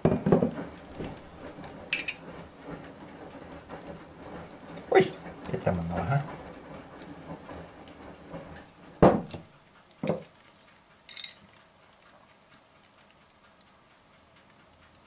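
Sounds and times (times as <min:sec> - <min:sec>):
teaspoon and bottle knocking on saucepan: 0:10.0 - 0:10.3
faint ringing clink: 0:11.1 - 0:11.4.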